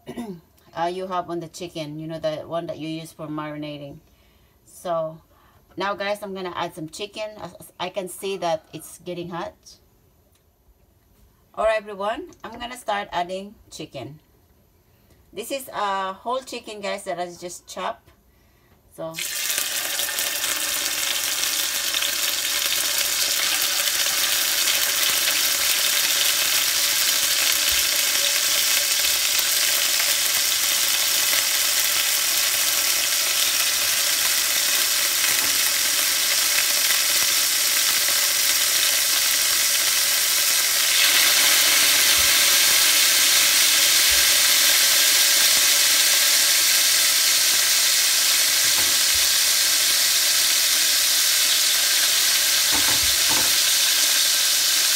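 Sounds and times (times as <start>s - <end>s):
chicken sizzling in hot oil: 19.2s - 54.9s
pieces knocking on pan: 48.7s - 49.3s, 52.7s - 53.7s.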